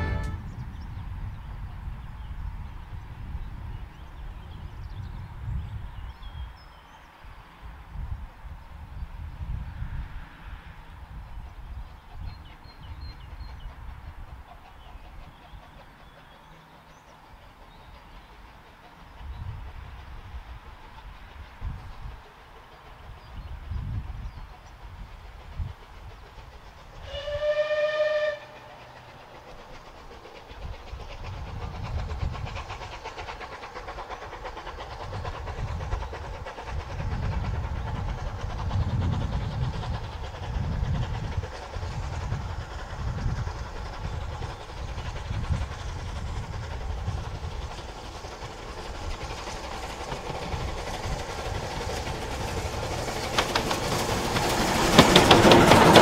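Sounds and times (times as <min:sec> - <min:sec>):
steam locomotive whistle: 0:00.0 - 0:00.6, 0:27.0 - 0:29.0
steam locomotive exhaust beats: 0:00.0 - 0:56.0.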